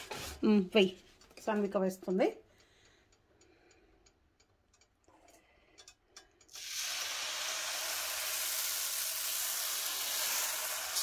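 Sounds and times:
batter sizzling on hot pan: 0:06.5 - 0:11.0.

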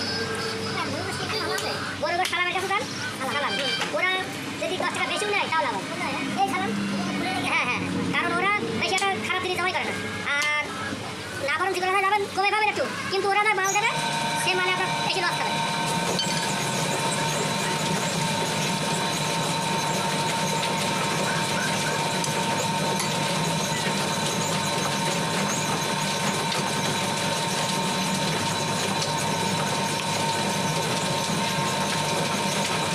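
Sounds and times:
engine drone with whine: 0:00.0 - 0:02.0, 0:13.6 - 0:32.9.

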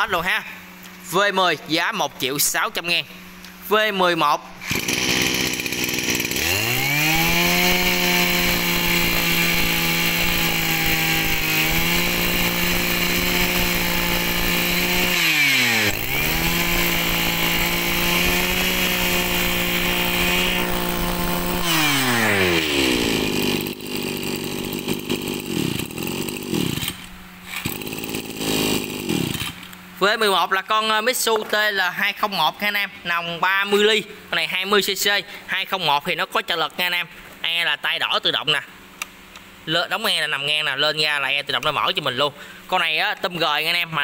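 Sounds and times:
brush cutter engine revving: 0:04.5 - 0:29.9.

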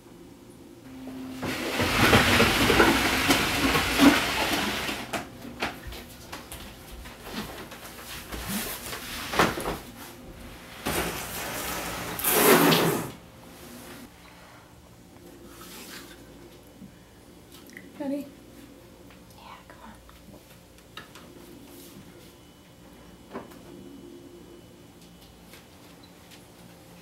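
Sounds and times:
chest of drawers scraping floor: 0:01.3 - 0:05.1, 0:10.8 - 0:13.2.

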